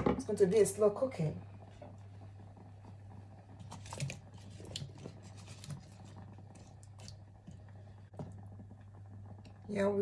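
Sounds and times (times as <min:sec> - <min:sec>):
steady low hum: 0:00.0 - 0:10.0
wet squishing: 0:03.6 - 0:08.4.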